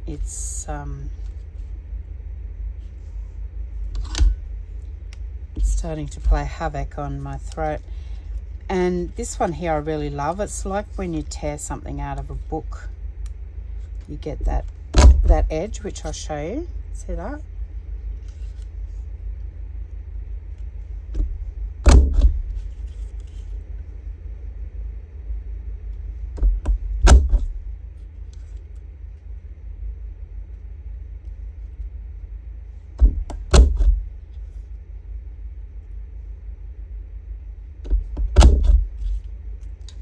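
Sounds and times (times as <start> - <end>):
low hum: 0.0 - 40.0.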